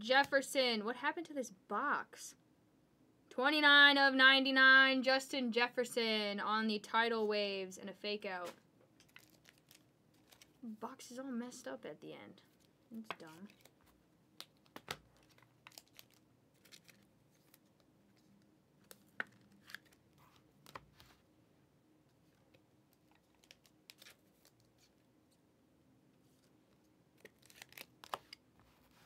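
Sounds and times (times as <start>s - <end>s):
trading cards being handled: 8.4s - 10.6s, 12.4s - 21.2s, 22.1s - 25.4s, 26.2s - 29.0s.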